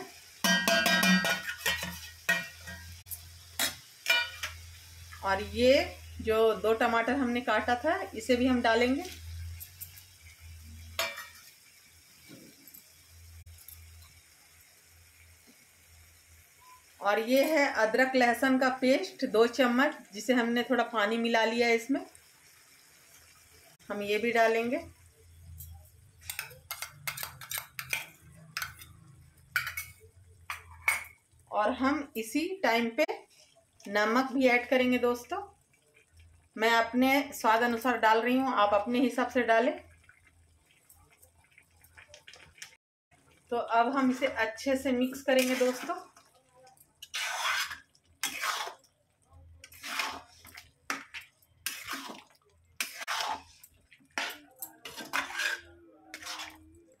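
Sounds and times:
metal spatula clinking and scraping: 0:00.4 - 0:04.6, 0:09.0 - 0:11.5, 0:17.2 - 0:17.8, 0:25.4 - 0:31.2, 0:45.0 - 0:46.2, 0:46.8 - 0:48.9, 0:49.6 - 0:56.7.

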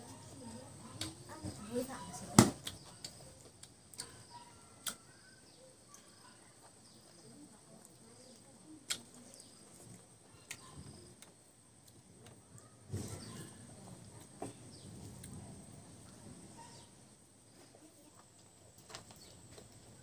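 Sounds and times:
faint bird chirps: 0:00.0 - 0:11.3, 0:12.3 - 0:15.5
man chewing food: 0:02.6 - 0:12.4.

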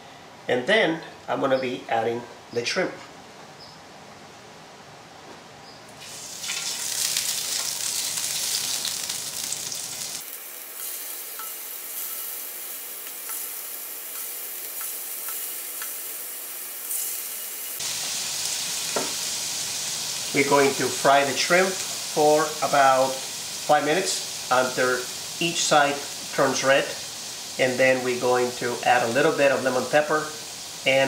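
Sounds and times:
shrimp sizzling in hot oil: 0:06.0 - 0:31.0
oil popping: 0:06.2 - 0:09.6.

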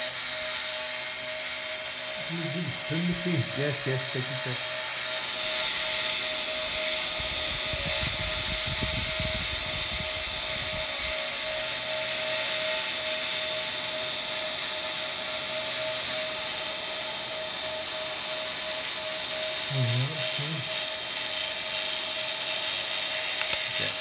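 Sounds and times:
electric motor whining: 0:00.0 - 0:24.0.

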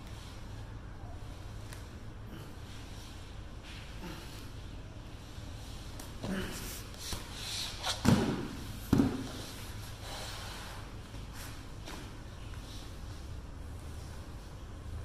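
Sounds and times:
thumps on foam roller: 0:08.0 - 0:09.4.

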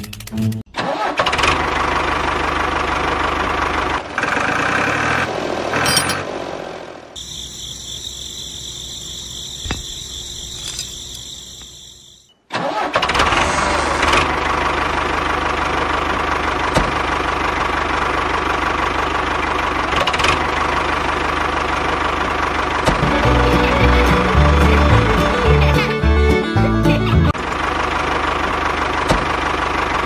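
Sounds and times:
small engine running: 0:01.2 - 0:06.2, 0:13.0 - 0:30.0.

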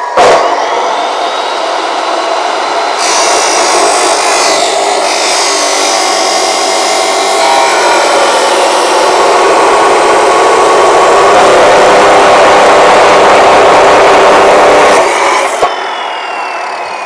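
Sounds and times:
saw disc grinding through steel: 0:00.0 - 0:15.8
chop saw running: 0:00.0 - 0:17.0.

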